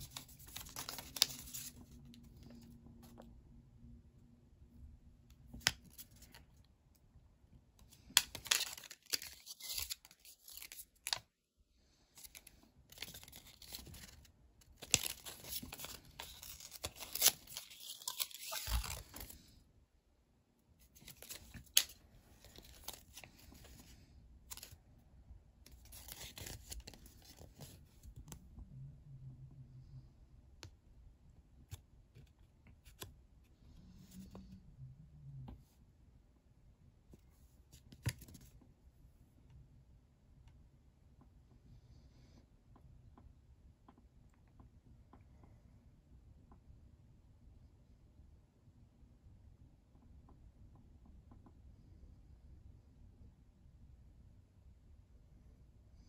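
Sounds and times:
paper crinkling and tearing: 0.0 - 1.8, 8.2 - 11.2, 12.2 - 19.4.

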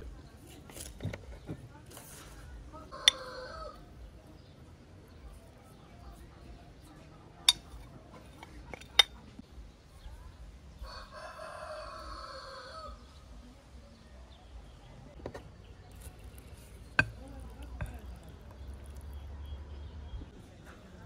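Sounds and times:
rooster crowing: 2.9 - 3.8, 10.8 - 13.0.

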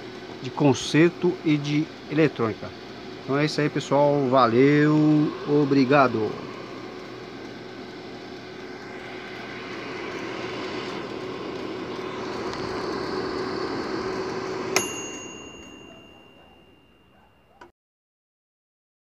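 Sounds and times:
air fryer fan humming: 0.0 - 17.3
timer bell ding: 14.8 - 17.6.

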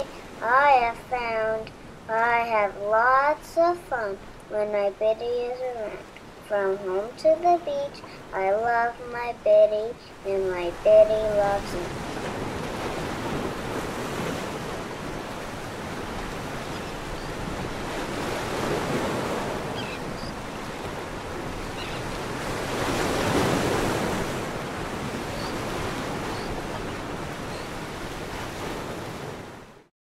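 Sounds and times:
ocean surf washing onto beach: 0.0 - 29.9
wind rumbling on microphone: 10.8 - 29.8.

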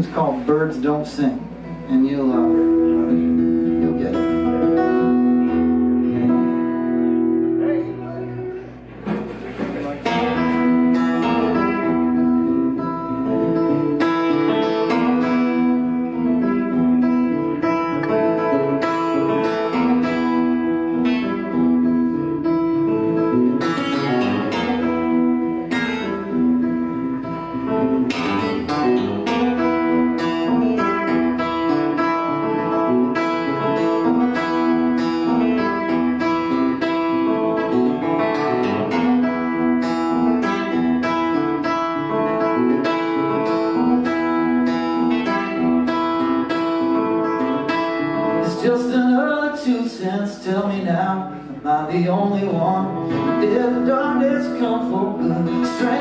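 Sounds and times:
acoustic guitar riff: 0.0 - 56.0
man singing: 48.2 - 56.0.

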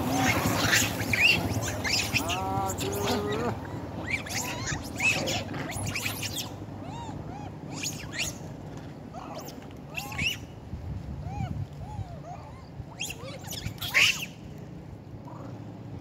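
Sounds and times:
monkey wavering call: 0.0 - 8.4
monkeys squeaking and chirping: 0.0 - 8.5, 9.2 - 10.5, 11.3 - 14.4.

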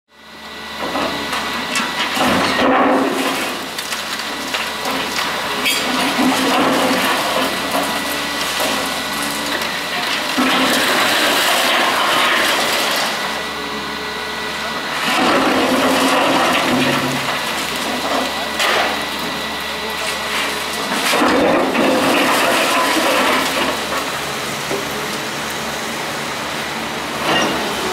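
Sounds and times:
excavator engine and hydraulics: 0.1 - 27.9
concrete cracking and crashing down: 2.1 - 13.2, 15.0 - 19.0, 20.7 - 24.2.

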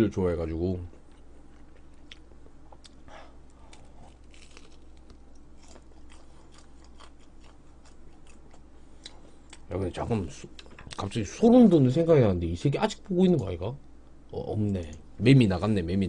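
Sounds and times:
person chewing food: 1.0 - 9.7.

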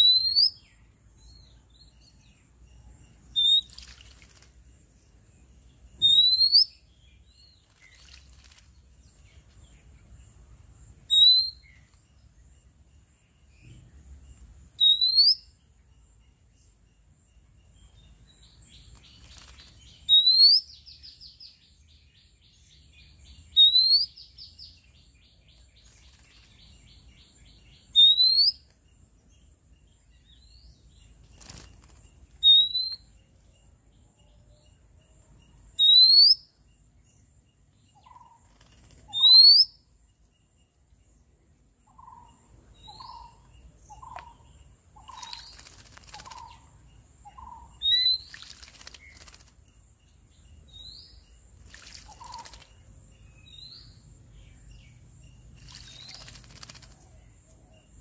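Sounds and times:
fast churring rattle: 45.1 - 46.6, 48.1 - 49.6, 51.6 - 52.8, 55.6 - 57.1.

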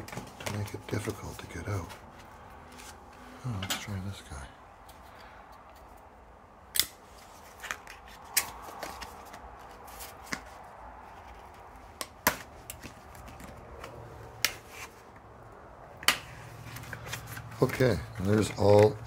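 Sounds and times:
cardboard rustling: 0.0 - 3.1, 7.1 - 15.2, 16.2 - 19.0.

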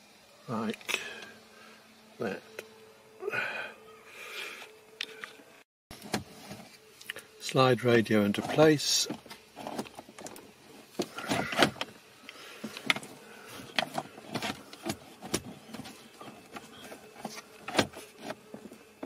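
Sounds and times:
radio unit scraping and clicking: 7.1 - 18.8.

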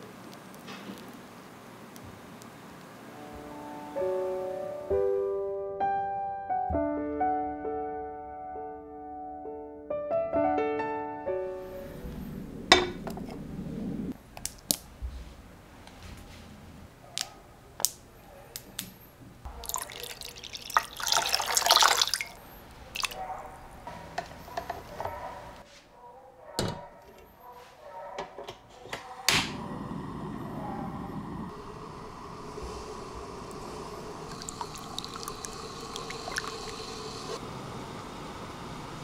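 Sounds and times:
water poured into metal pot: 19.5 - 23.2, 33.4 - 37.4
gas burner clicking and hissing: 29.2 - 39.0.

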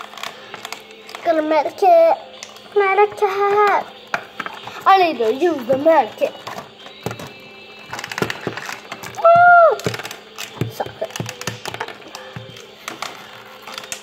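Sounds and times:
plastic toys clicking on tiles: 3.5 - 14.0.

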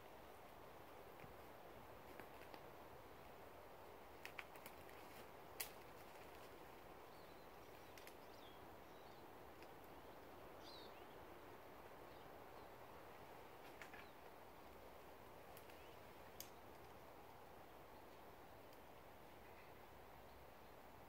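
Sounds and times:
steady low hiss: 0.0 - 21.0
small bird chirping: 6.0 - 11.3.

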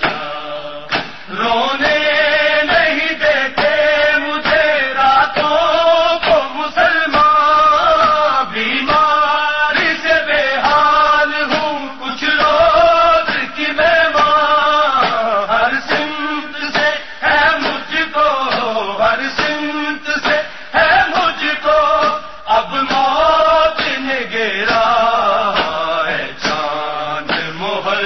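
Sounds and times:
sharp beats: 0.0 - 4.7
man chanting a lament: 0.0 - 28.0.

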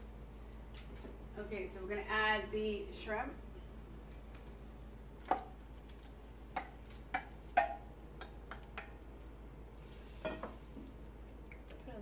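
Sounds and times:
wooden spoon tapping steel bowl: 6.5 - 9.0.

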